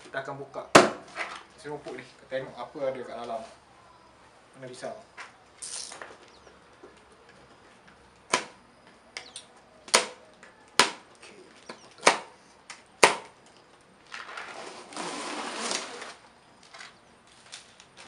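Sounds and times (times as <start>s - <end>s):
cardboard and packing rustling: 14.0s - 18.0s.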